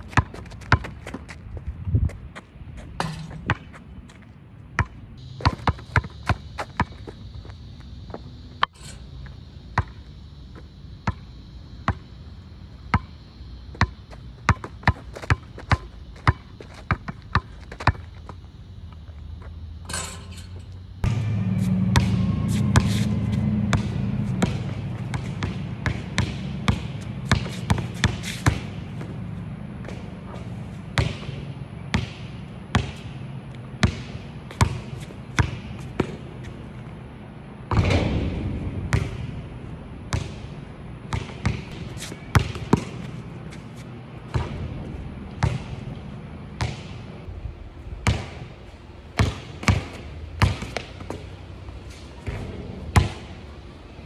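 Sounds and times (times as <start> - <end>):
basketball bouncing on concrete: 0.1 - 1.4, 3.0 - 3.8, 4.8 - 7.0, 13.8 - 18.4, 21.8 - 33.2, 33.8 - 36.4, 37.7 - 40.5, 41.1 - 43.6, 44.2 - 46.0, 46.6 - 47.0, 49.2 - 51.4, 52.2 - 53.3
low steady rumble: 18.4 - 54.0.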